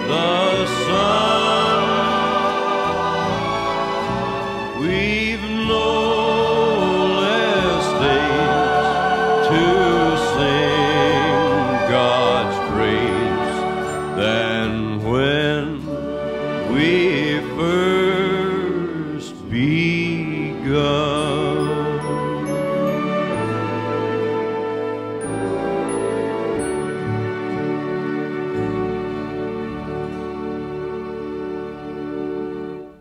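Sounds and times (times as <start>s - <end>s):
singer with vibrato: 0.0s - 22.4s
instrumental accompaniment: 0.0s - 33.0s.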